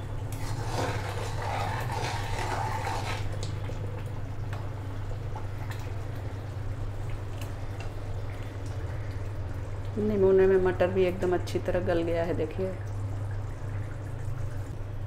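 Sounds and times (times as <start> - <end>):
curry bubbling and plopping: 0.0 - 15.0
steady low hum: 0.0 - 15.0
metal ladle scraping a pot: 0.3 - 3.4.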